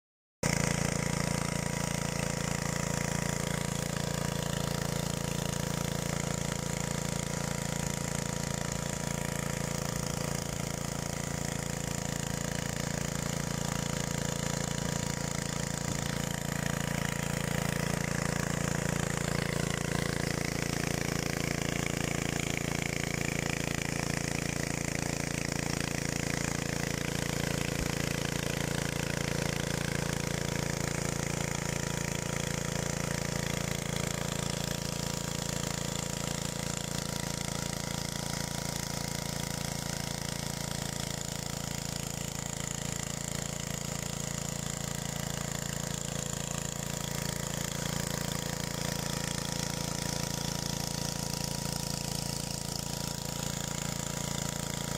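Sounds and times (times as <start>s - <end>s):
motor hoe engine running: 0.4s - 54.9s
tines churning dry soil: 14.8s - 23.6s.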